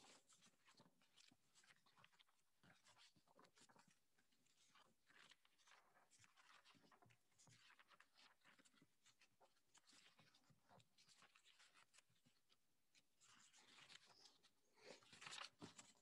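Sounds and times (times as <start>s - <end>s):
paper sheets rustling: 13.4s - 16.0s.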